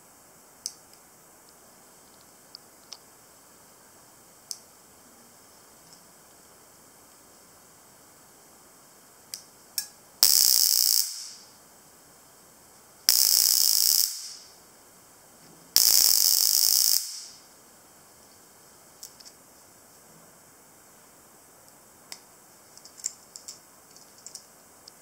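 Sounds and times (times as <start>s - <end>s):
stun gun crackling zaps: 10.2s - 11.4s, 13.1s - 14.5s, 15.8s - 17.4s.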